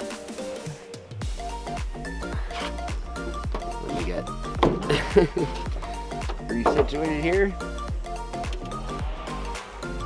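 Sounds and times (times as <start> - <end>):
deep bass and beat: 1.2 - 10.0
held melodic notes: 1.5 - 8.9.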